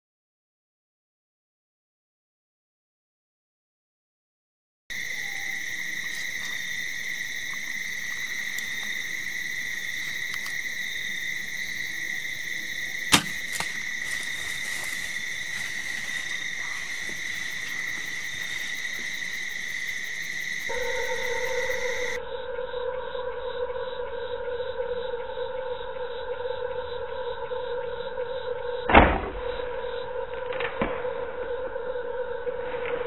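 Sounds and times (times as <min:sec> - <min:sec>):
crickets trilling: 0:04.9 - 0:32.9
sharp bowstring crack: 0:13.1 - 0:15.0
low steady tone: 0:20.7 - 0:26.4.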